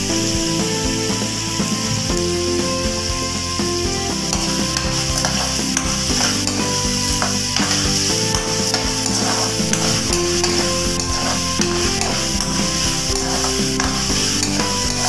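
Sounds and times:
food sizzling in hot oil: 0.0 - 15.0
metal spatula scraping pan: 4.3 - 15.0.

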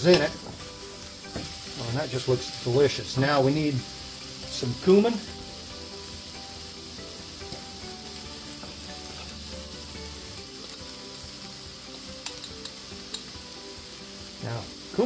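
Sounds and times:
vegetables sizzling in oil: 0.0 - 15.0.

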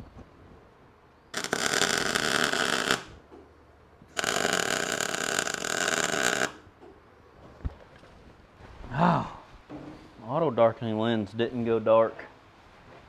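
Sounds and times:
arc welding: 1.3 - 3.2, 4.1 - 6.7.

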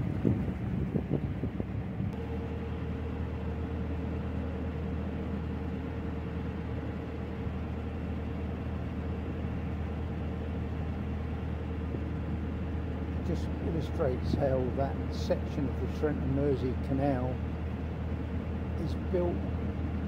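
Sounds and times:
wind buffeting microphone: 0.0 - 2.2
boat engine droning: 0.0 - 20.0.

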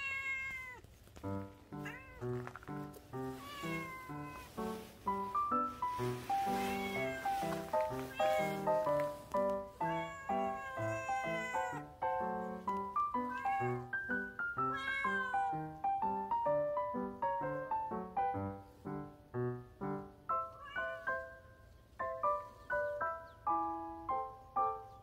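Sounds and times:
cats meowing: 0.0 - 1.0, 1.7 - 4.9, 6.3 - 15.8, 20.3 - 21.4
music with clear stepped notes: 4.6 - 14.6.

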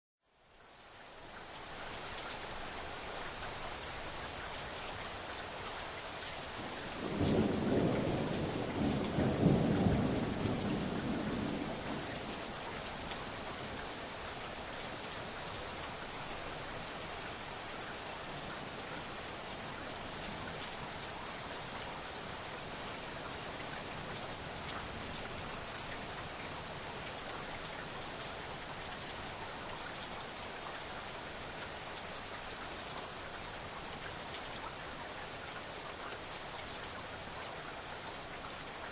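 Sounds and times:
rain hissing: 1.1 - 38.9
thunder rumbling: 6.6 - 12.6.

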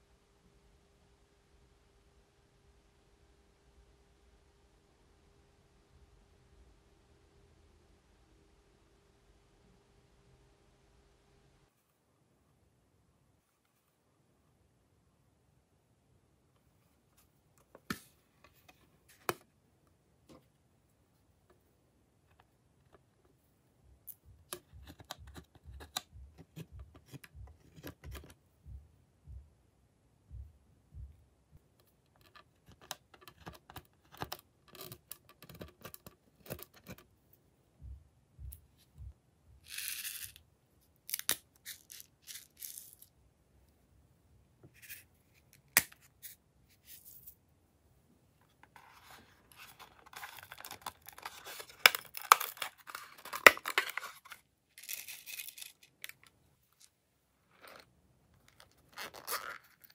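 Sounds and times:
plastic cases clicking and tapping: 50.0 - 54.3.

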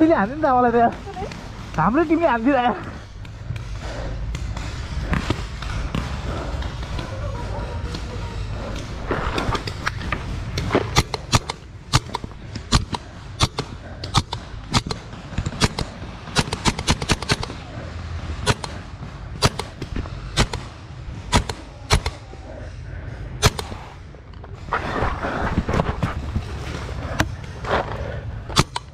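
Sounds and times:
low rumble: 0.0 - 28.9
paintball markers firing: 8.7 - 17.7, 18.4 - 20.7, 21.3 - 22.3, 23.4 - 24.0, 28.5 - 28.9.

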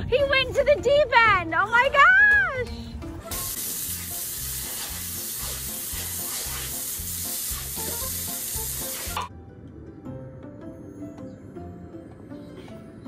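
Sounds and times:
music beat: 3.2 - 9.3
hose water spraying on concrete: 3.3 - 9.3.

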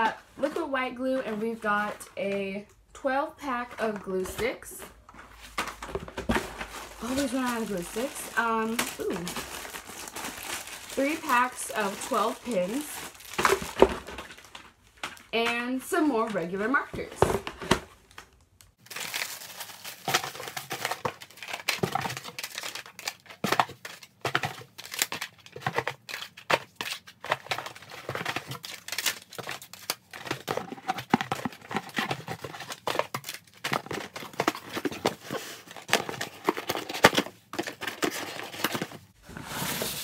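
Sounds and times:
cardboard boxes being handled: 3.4 - 15.5, 29.7 - 40.0.

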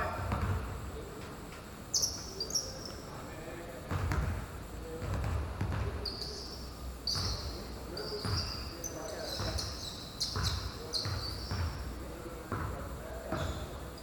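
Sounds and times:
players' voices: 0.0 - 14.0
basketball bouncing on a court: 0.1 - 0.8, 3.9 - 6.0, 7.1 - 7.6, 8.2 - 8.7, 9.3 - 13.8
sneaker squeaks: 1.9 - 3.1, 5.0 - 14.0.

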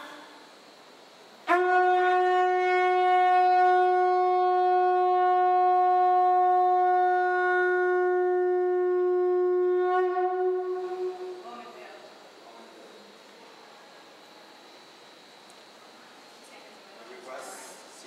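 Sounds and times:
conch shell trumpet note: 1.4 - 11.7.

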